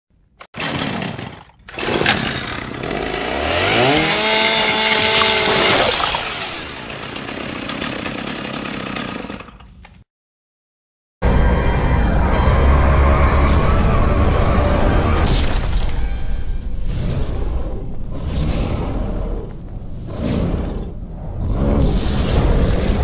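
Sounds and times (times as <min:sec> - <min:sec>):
chainsaw running and revving: 0:00.6 - 0:09.7.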